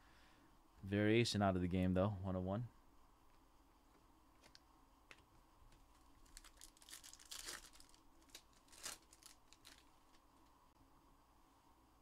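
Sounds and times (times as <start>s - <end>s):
packaging crinkling: 5.9s - 10.2s.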